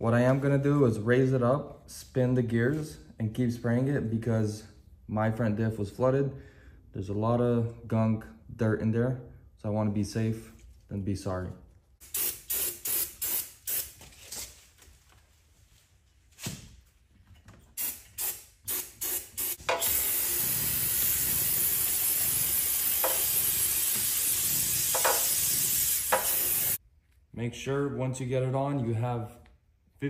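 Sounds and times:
aerosol spray hissing: 12.0s - 13.9s, 17.8s - 26.8s.

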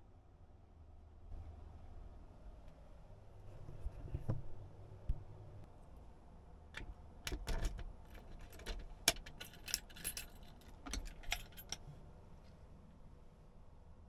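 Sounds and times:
key jangling in lock: 7.3s - 11.8s.

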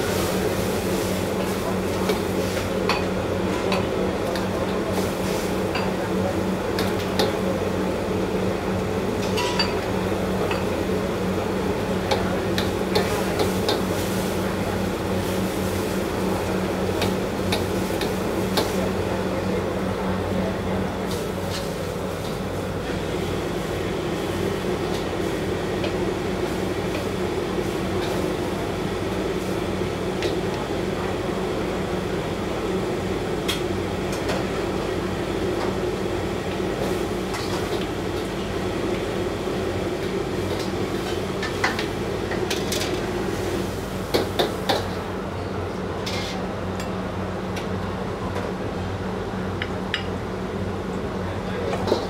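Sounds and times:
oil frying: 0.0s - 19.2s.

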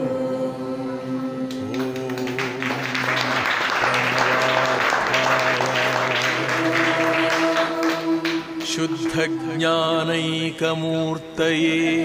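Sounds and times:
music with held notes: 0.0s - 12.0s
small group clapping: 1.5s - 9.6s.

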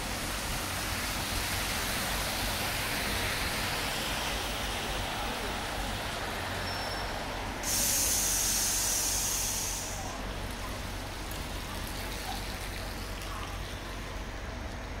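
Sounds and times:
street traffic noise: 0.0s - 15.0s
compressed air hissing from bus: 7.6s - 10.2s.

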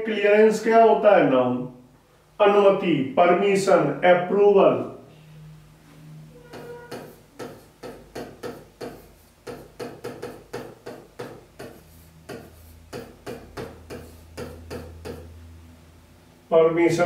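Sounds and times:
pen tapping on touchscreen: 6.5s - 15.3s.

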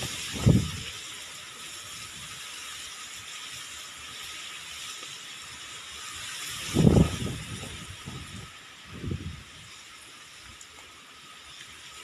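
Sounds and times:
wind buffeting microphone: 0.0s - 1.2s, 6.2s - 9.8s
wind hissing through leaves: 0.0s - 12.0s.

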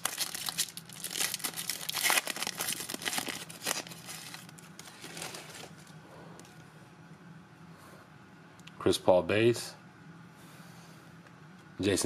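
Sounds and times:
foil wrapper tearing and crinkling: 0.0s - 5.9s.

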